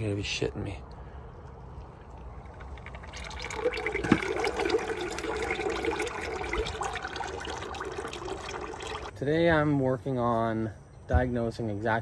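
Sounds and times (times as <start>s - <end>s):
oil pouring into a bucket: 2.2s - 9.1s.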